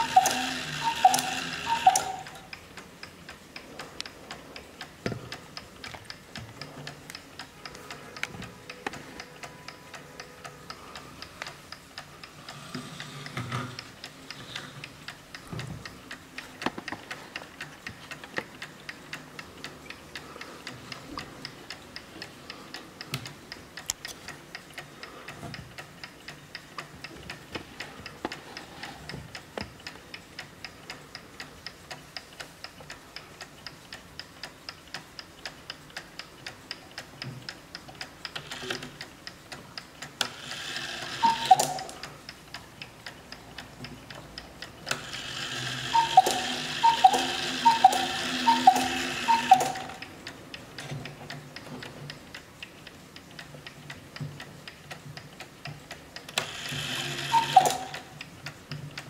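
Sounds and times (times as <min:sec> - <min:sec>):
cuckoo bellows hiss and pipe notes: 0:00.0 - 0:02.6, 0:40.4 - 0:42.1, 0:44.9 - 0:50.0, 0:56.4 - 0:58.2
clock ticking: 0:00.0 - 0:59.0.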